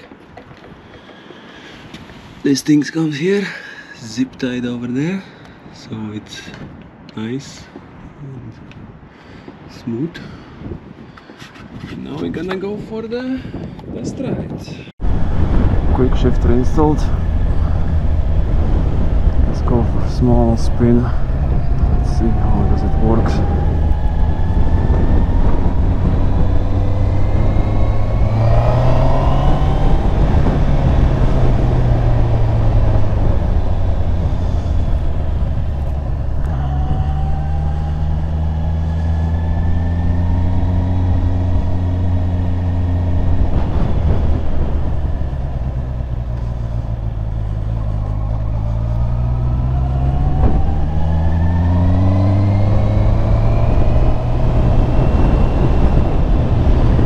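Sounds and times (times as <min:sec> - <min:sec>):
motorcycle engine revving: 0:15.0 - 0:57.0.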